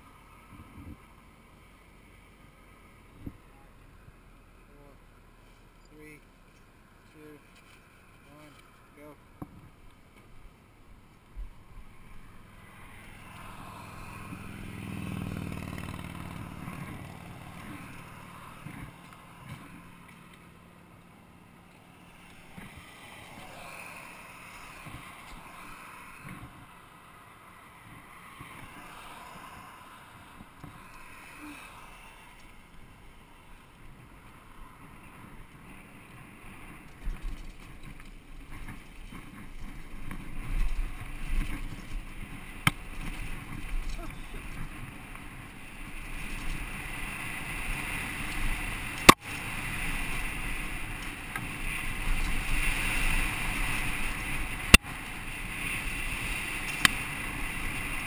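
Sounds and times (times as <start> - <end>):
bike tyres rumbling over dirt: 34.8 - 58.0.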